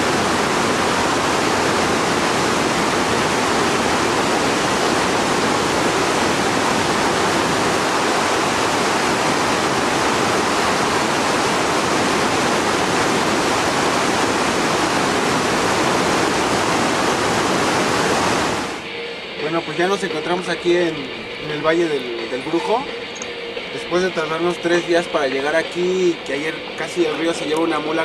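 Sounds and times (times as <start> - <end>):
river rushing through rapids: 0.0 - 18.8.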